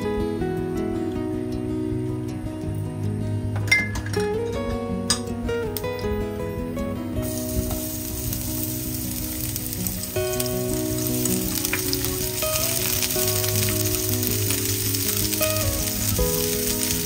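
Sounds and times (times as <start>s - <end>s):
food sizzling in hot oil: 7.2s - 17.0s.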